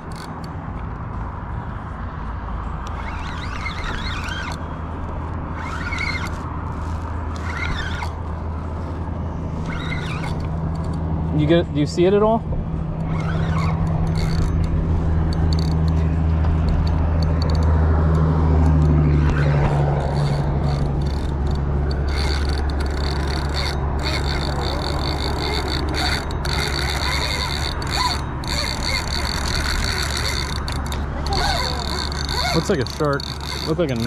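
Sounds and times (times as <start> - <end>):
traffic engine drone: 0.0 - 34.0
fishing reel buzzing: 2.8 - 11.0, 13.0 - 16.0, 18.7 - 34.0.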